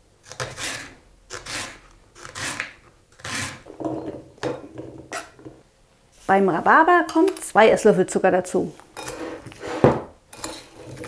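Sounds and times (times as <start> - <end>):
knife slicing rhubarb: 0.2 - 3.6.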